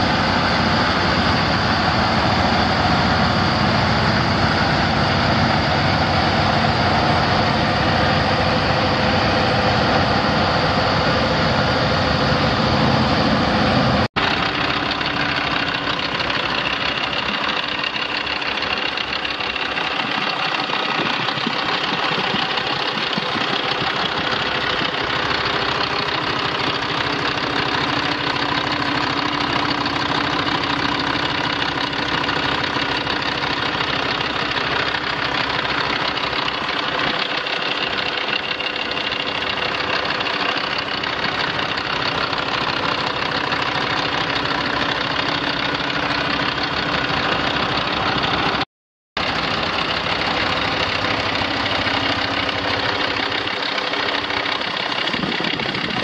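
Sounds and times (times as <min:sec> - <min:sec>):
diesel truck engine idling: 0:00.0 - 0:48.6, 0:49.2 - 0:56.0.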